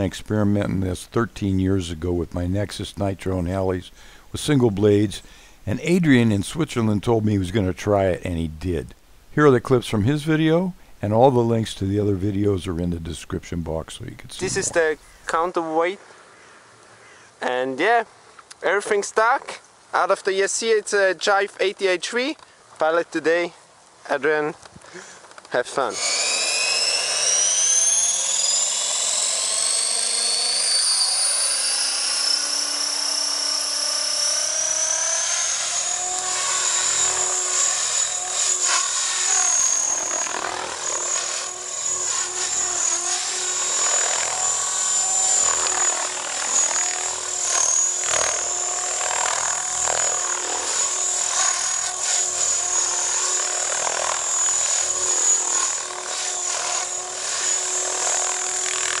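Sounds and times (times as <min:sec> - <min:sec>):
rc helicopter rotor whine: 0:25.7 - 0:59.0.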